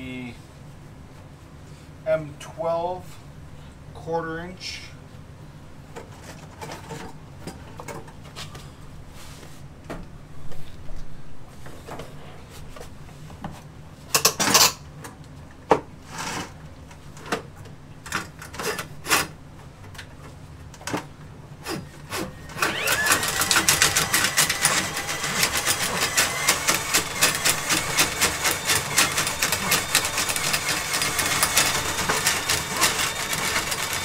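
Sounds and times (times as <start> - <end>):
knocks and clatters of handling: 5.9 - 8.6.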